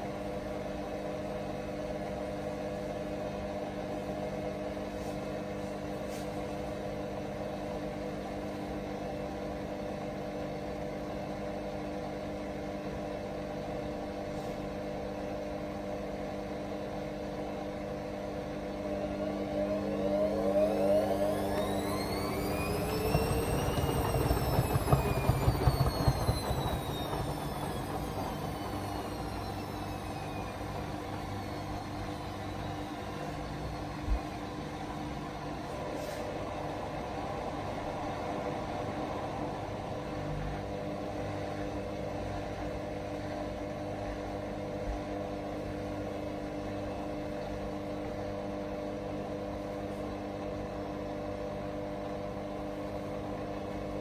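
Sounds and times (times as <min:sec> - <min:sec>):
washing machine humming: 0:00.0 - 0:54.0
washing machine motor whining: 0:17.3 - 0:35.8.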